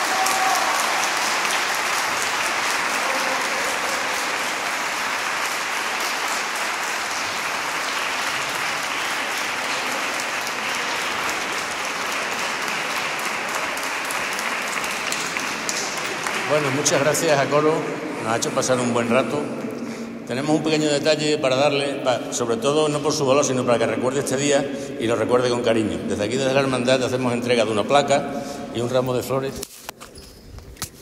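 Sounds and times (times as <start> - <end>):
audience applauding: 0.0 - 18.4.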